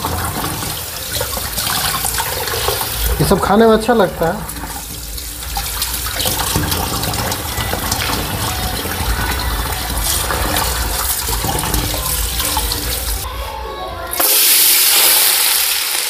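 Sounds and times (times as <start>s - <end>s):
tap water running into sink: 0.0s - 13.3s
water splashing over meat: 0.0s - 13.3s.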